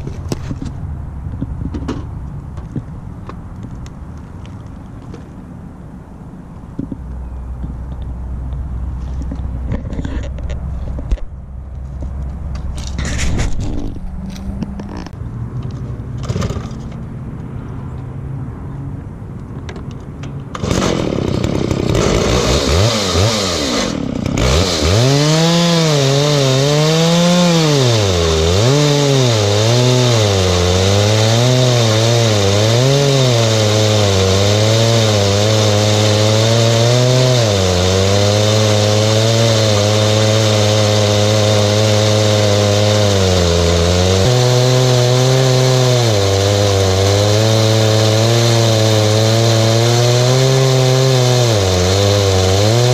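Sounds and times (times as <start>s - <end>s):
chainsaw cutting log: 16.2s - 17.0s, 20.5s - 52.9s.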